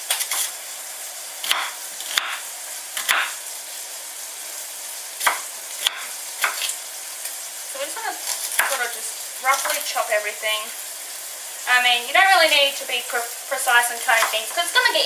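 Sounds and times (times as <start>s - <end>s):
food sizzling in a frying pan: 0.0s - 15.0s
knife chopping on wooden board: 1.4s - 2.4s, 3.0s - 3.4s, 5.2s - 6.7s.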